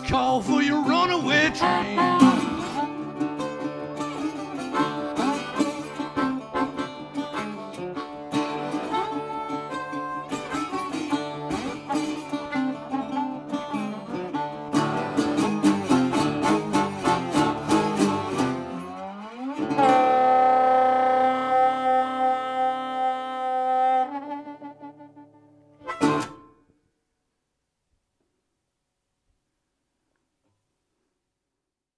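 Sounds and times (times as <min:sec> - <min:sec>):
harmonica: 0:00.0 - 0:26.6
resonator guitar strumming: 0:00.0 - 0:26.7.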